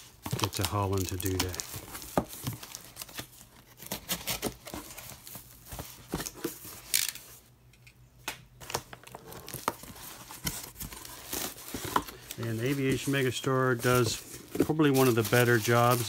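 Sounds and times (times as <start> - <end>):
cardboard rustling and scraping: 0.0 - 7.4, 8.6 - 16.0
packing peanuts crinkling: 0.1 - 3.4, 11.0 - 16.0.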